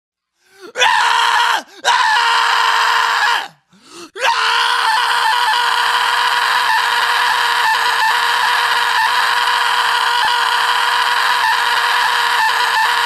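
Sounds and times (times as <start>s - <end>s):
distorted screamed vocal: 4.2s - 13.0s.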